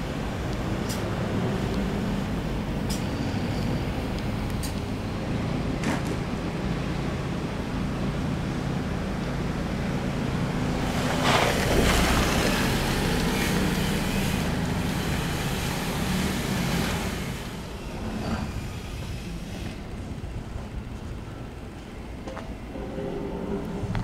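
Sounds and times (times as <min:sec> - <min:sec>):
vehicle passing by: 0:10.7 - 0:18.5
wind on microphone: 0:22.6 - 0:24.0.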